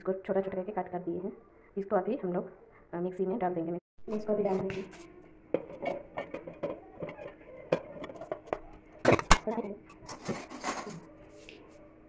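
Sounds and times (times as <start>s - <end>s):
food pieces clattering in steel jar: 5.6s - 11.0s.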